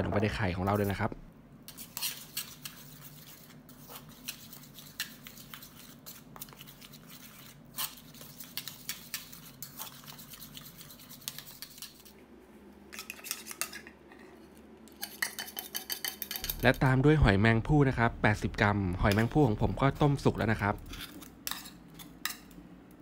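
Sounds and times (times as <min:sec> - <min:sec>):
fork scraping metal bowl: 0:01.7 - 0:12.2, 0:13.0 - 0:16.9, 0:19.1 - 0:22.6
faint low hum: 0:16.3 - 0:23.0.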